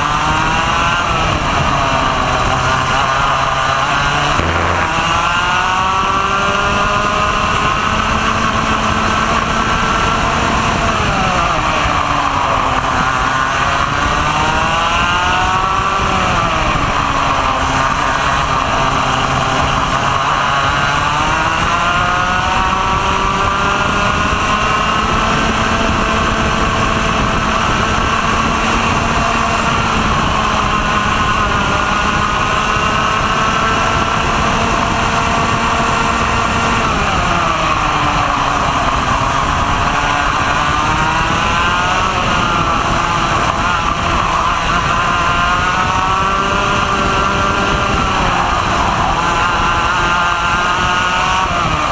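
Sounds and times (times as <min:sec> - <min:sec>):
racing kart engine revving: 0:00.0 - 0:51.9
wind noise: 0:00.0 - 0:51.9.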